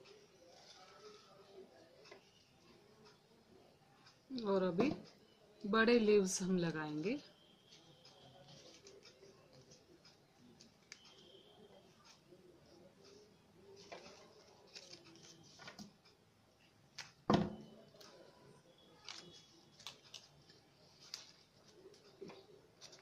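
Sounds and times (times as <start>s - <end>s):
craft paper rustling and crinkling: 7.7s - 11.2s, 13.1s - 15.9s, 18.0s - 23.0s.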